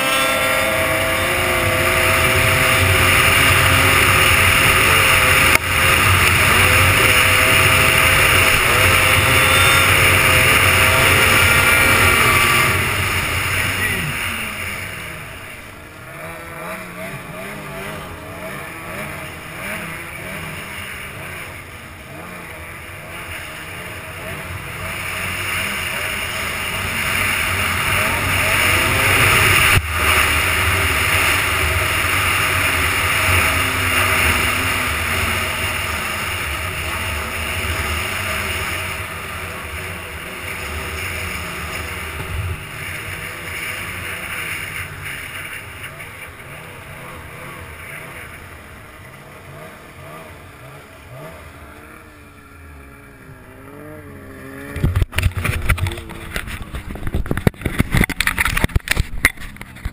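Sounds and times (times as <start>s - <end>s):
snowmobile engine running: 0.0s - 59.9s.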